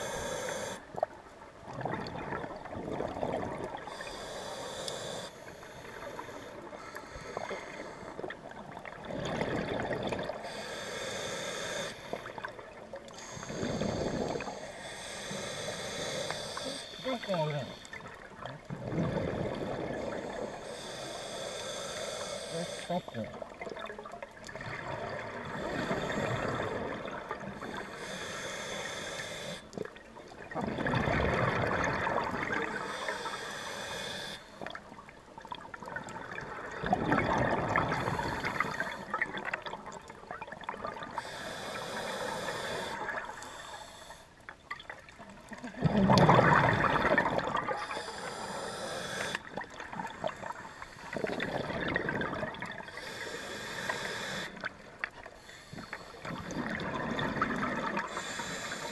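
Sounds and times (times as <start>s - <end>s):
regulator hissing inhale: 0.0s - 0.9s, 3.8s - 8.3s, 10.3s - 12.4s, 13.1s - 18.0s, 20.2s - 23.1s, 25.5s - 26.8s, 27.6s - 29.8s, 32.7s - 34.7s, 41.2s - 44.5s, 47.8s - 49.7s, 50.6s - 51.3s, 52.8s - 56.5s, 57.9s - 58.9s
exhaled bubbles gushing: 1.0s - 3.9s, 8.3s - 10.4s, 18.0s - 20.4s, 23.1s - 27.8s, 29.8s - 32.9s, 34.7s - 41.2s, 44.8s - 48.0s, 49.4s - 52.9s, 56.3s - 58.1s.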